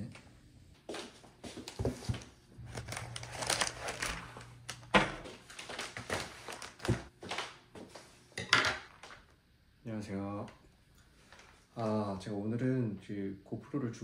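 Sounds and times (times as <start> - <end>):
paper rustling and crinkling: 1.5 - 8.1.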